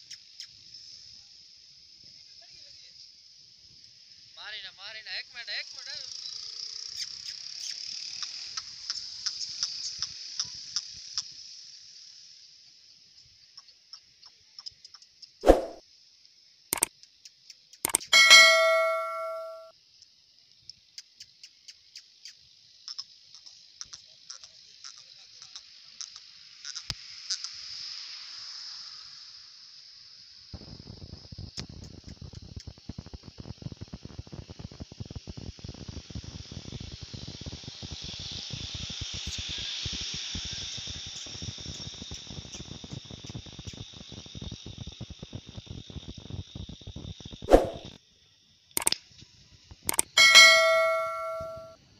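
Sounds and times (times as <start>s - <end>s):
short sharp clicks: 49.9s - 51.6s.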